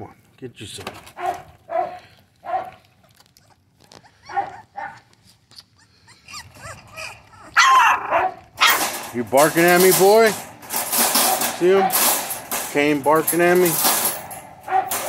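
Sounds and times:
puppy barking: 0:01.2 - 0:02.8, 0:04.2 - 0:05.0, 0:06.3 - 0:08.8, 0:14.7 - 0:15.0.

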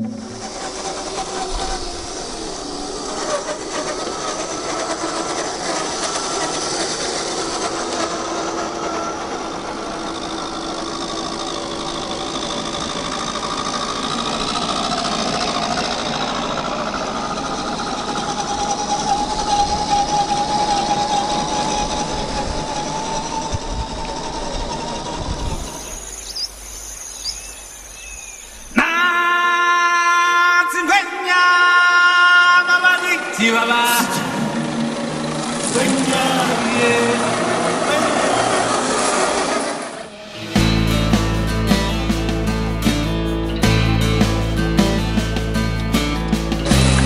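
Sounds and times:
toy car electric motors whining: 0:00.0 - 0:26.4, 0:34.6 - 0:40.2.

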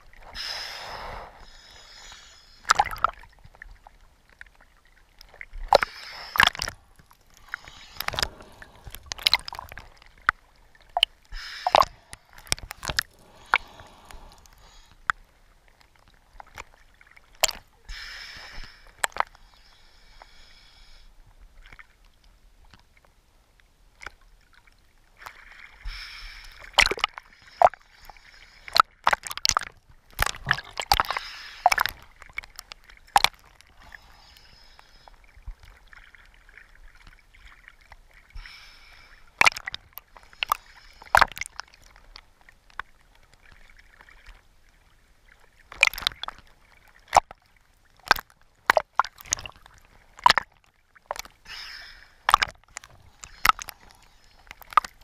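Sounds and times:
small waves sloshing: 0:00.0 - 0:17.8
sharp water splashes: 0:10.9 - 0:14.7, 0:26.7 - 0:27.8, 0:48.0 - 0:53.9.

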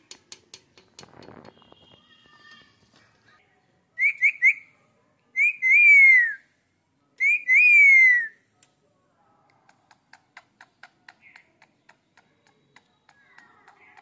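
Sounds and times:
faint rapid clicking: 0:09.5 - 0:14.0.

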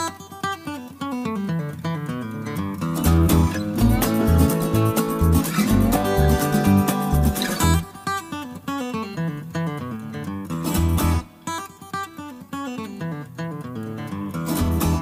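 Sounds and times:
quick plucked notes: 0:03.0 - 0:08.2
bass line: 0:03.1 - 0:07.8.

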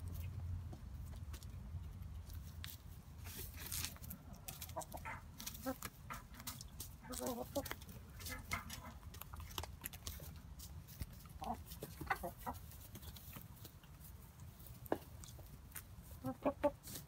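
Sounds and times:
beaks pecking at food in straw: 0:00.0 - 0:17.0
hens clucking softly: 0:04.2 - 0:17.0.

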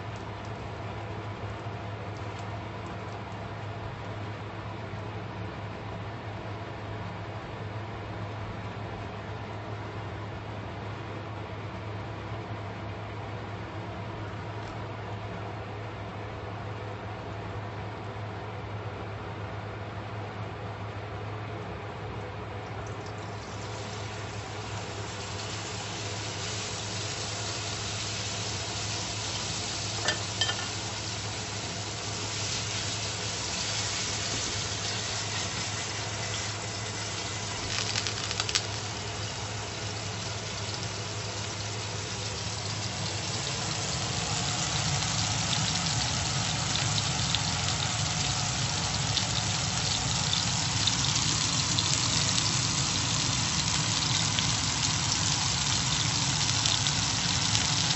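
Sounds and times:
steak sizzling in frying pan: 0:23.3 - 0:57.9.

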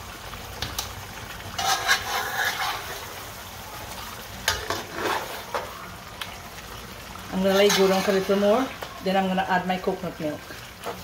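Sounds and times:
curry bubbling and frying: 0:00.0 - 0:11.0
spoon scraping metal pot: 0:01.6 - 0:03.0, 0:07.5 - 0:08.3.

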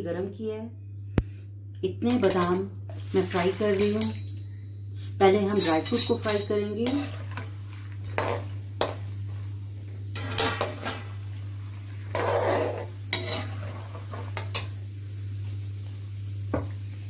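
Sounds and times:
low sizzle of frying: 0:00.0 - 0:17.0
metal spoon scraping metal pan: 0:05.5 - 0:07.5, 0:10.2 - 0:11.1, 0:12.1 - 0:14.7.

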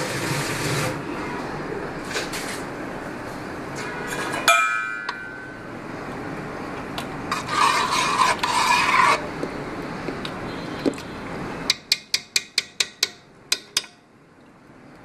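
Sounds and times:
metal utensil clinking on pot: 0:04.2 - 0:05.4
syrup being stirred in pot: 0:07.3 - 0:09.3.

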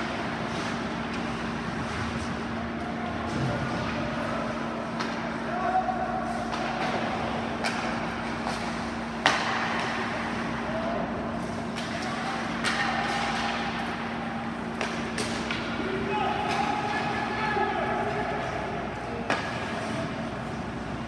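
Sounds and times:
steady low hum: 0:00.0 - 0:21.0
knocks of sticks and puck: 0:03.3 - 0:05.5, 0:06.2 - 0:20.9.

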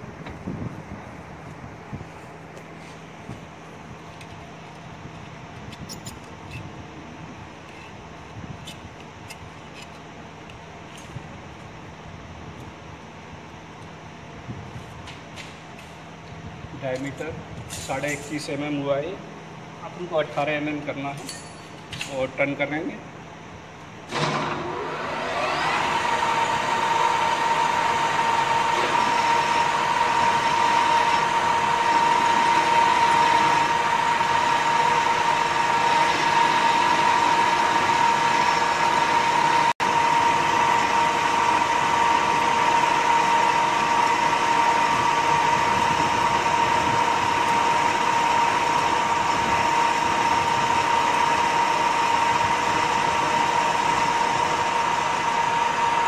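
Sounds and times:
metal lathe whining: 0:24.1 - 0:56.0.

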